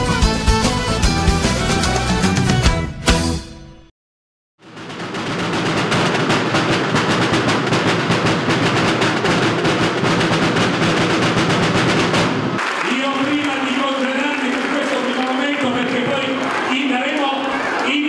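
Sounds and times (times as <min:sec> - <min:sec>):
rapid drum roll: 0:04.6 - 0:13.8.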